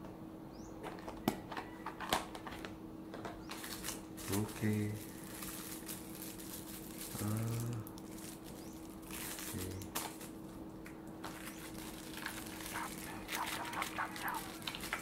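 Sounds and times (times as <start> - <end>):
faint steady hum: 0.0 - 15.0
plastic bag crinkling: 3.6 - 10.6, 11.2 - 15.0
person humming: 7.1 - 7.9.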